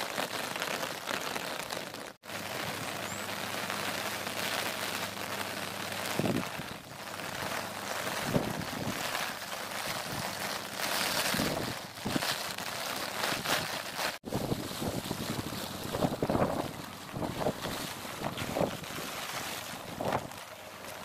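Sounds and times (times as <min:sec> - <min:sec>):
heavy rain on water: 0:00.0 - 0:21.0
wind buffeting microphone: 0:06.2 - 0:06.8, 0:08.1 - 0:09.2, 0:11.2 - 0:12.3, 0:14.2 - 0:20.4.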